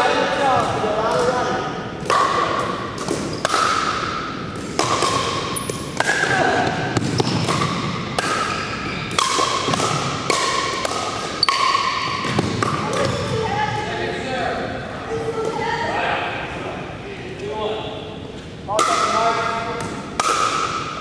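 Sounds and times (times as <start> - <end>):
paddles hitting plastic ball: 0.5 - 13.3, 19.8 - 21.0.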